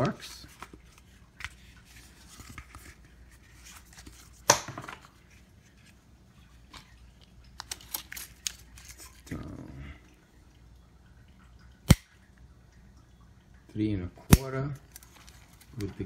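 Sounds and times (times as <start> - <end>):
plastic scraping and rustling: 0.0 - 9.4, 14.8 - 16.0.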